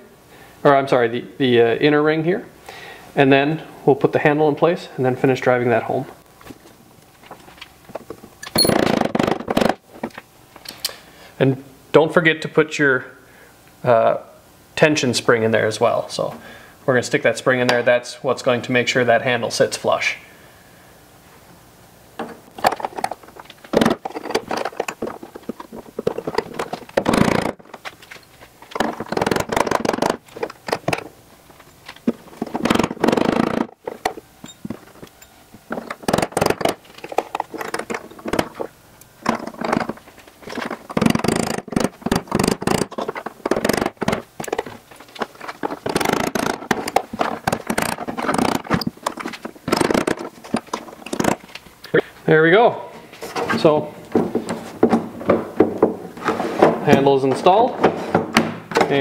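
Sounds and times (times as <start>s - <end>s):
small metal parts scraping and clicking: 8.4s - 8.8s.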